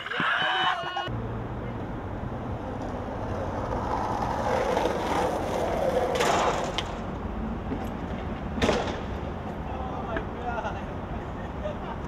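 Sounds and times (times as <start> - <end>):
skateboard wheels rolling on concrete: 0.0 - 12.0
skateboard clack: 2.7 - 7.1, 7.8 - 9.2.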